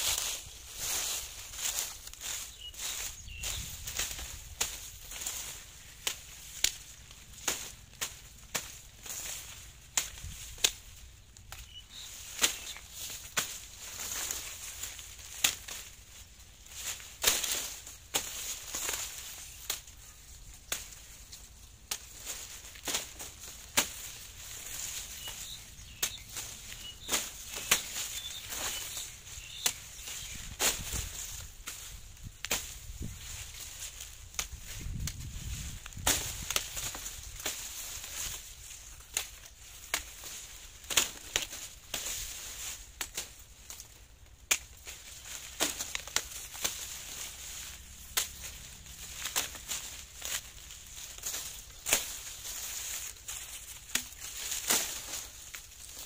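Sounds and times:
dry leaves rustling: 0:00.0 - 0:56.0
sharp stalk cracks: 0:00.9 - 0:16.0, 0:16.7 - 0:20.0, 0:20.7 - 0:56.0
blade chopping sugarcane: 0:16.9 - 0:19.8, 0:21.9 - 0:30.9, 0:44.4 - 0:53.2, 0:53.8 - 0:56.0.

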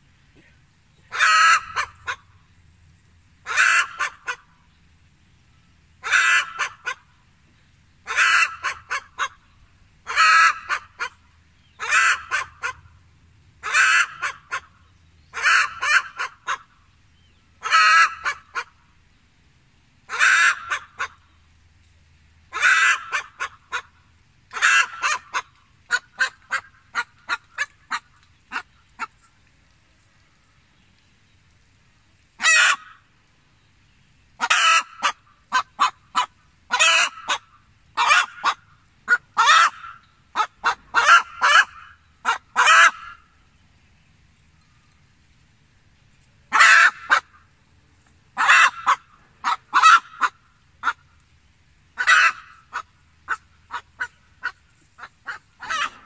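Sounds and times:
chicken cackling: 0:01.1 - 0:02.2, 0:08.1 - 0:09.4, 0:10.0 - 0:11.2, 0:11.8 - 0:12.8, 0:17.6 - 0:18.7, 0:24.5 - 0:29.1, 0:34.4 - 0:43.2, 0:46.5 - 0:47.4, 0:48.4 - 0:51.0, 0:52.0 - 0:56.0.

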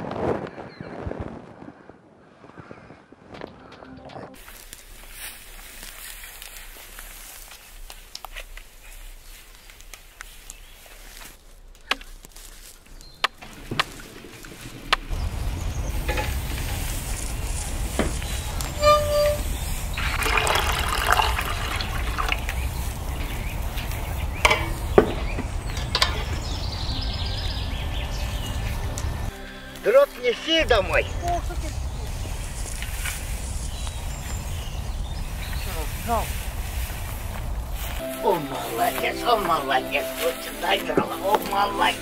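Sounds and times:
faint outdoor hiss: 0:04.4 - 0:42.0
firewood knocking: 0:12.9 - 0:15.2, 0:17.8 - 0:18.8, 0:24.4 - 0:26.4
low steady rumble: 0:13.4 - 0:20.2.

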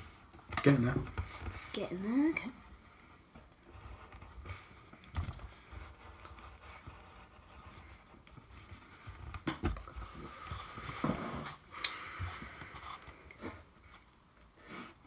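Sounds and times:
pencils scratching on paper: 0:00.0 - 0:11.6.

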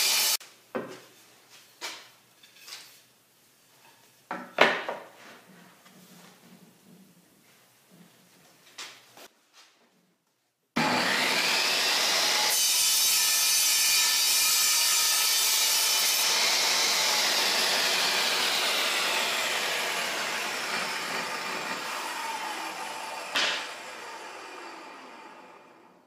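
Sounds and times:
saw cutting through wood: 0:00.0 - 0:00.4, 0:10.8 - 0:26.0
table saw running: 0:00.0 - 0:00.4, 0:10.8 - 0:26.0
saw whine winding down: 0:10.8 - 0:12.5, 0:16.2 - 0:26.0.

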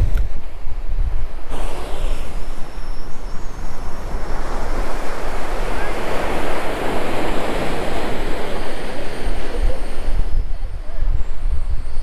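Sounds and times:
wind buffeting microphone: 0:00.0 - 0:12.0
ocean surf breaking: 0:01.4 - 0:11.2.

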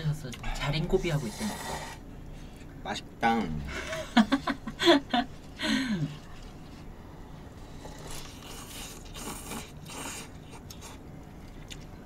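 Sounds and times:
wet noodle slurps: 0:07.6 - 0:11.0.

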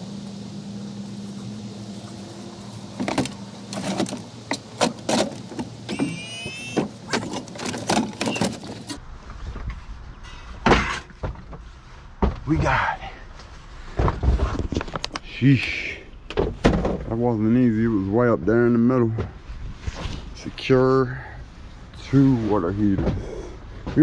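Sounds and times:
steady low hum: 0:00.0 - 0:06.2, 0:06.9 - 0:24.0
brief rising squeal: 0:05.9 - 0:06.8
metal knocks and clanks: 0:10.2 - 0:11.6.

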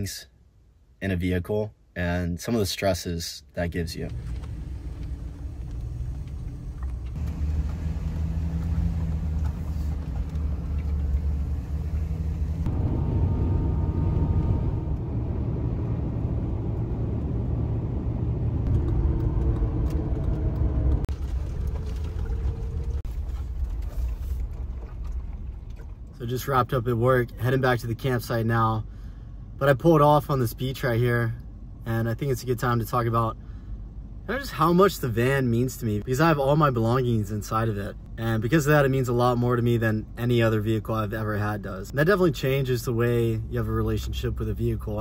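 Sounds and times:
van cabin road and engine rumble: 0:00.0 - 0:45.0.

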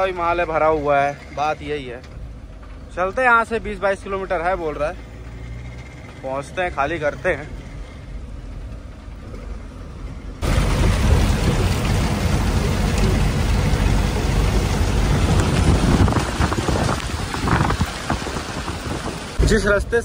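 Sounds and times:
truck engine: 0:00.0 - 0:20.0
tyres on wet road: 0:00.0 - 0:20.0
rain on truck cab: 0:08.2 - 0:19.8.

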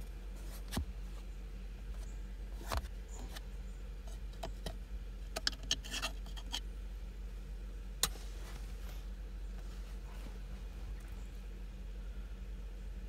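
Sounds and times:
steady low hum: 0:00.0 - 0:13.0
phone handling clicks and rustles: 0:04.1 - 0:06.6.

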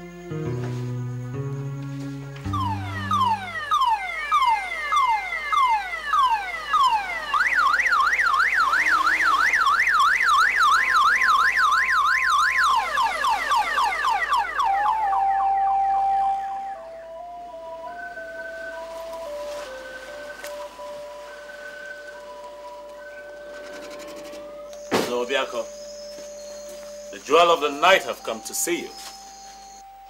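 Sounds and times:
steady held tones: 0:02.4 - 0:05.1
electronic siren wailing and warbling: 0:02.5 - 0:19.4.

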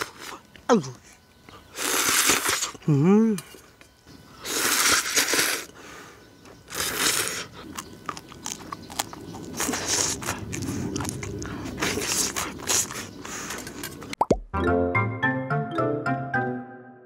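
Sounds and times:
noodle slurp: 0:01.7 - 0:02.8, 0:04.4 - 0:05.8, 0:06.7 - 0:14.1
wet chewing: 0:06.5 - 0:14.2.

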